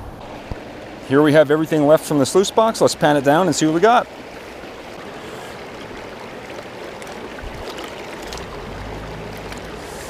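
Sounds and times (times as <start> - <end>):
creek water rushing: 0.0 - 10.0
water swishing in a plastic pan: 4.3 - 10.0.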